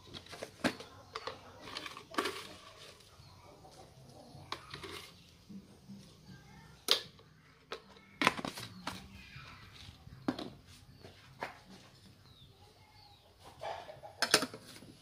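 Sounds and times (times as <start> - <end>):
plastic jars clicking and tapping: 0.1 - 2.6.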